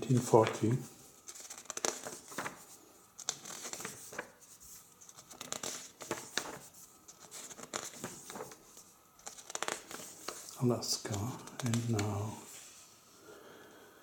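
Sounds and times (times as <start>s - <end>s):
book pages rustling: 0.1s - 12.8s
page edge crackles: 0.2s - 2.6s, 3.2s - 4.4s, 5.0s - 8.6s, 9.2s - 12.3s.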